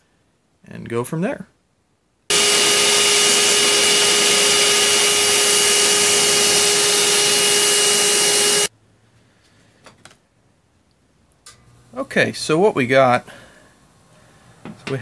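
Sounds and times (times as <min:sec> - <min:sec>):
shop vacuum whining: 0:02.3 - 0:08.7.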